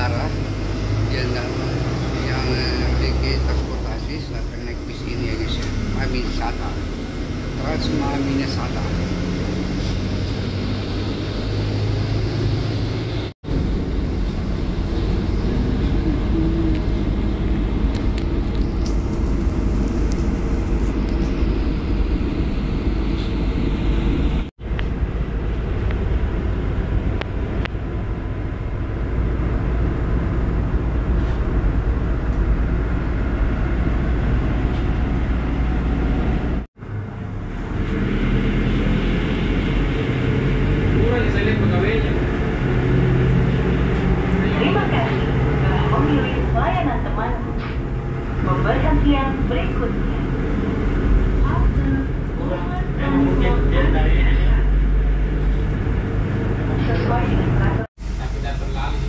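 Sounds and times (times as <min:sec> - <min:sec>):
bus rumbling inside cabin: 0:00.0 - 0:59.0.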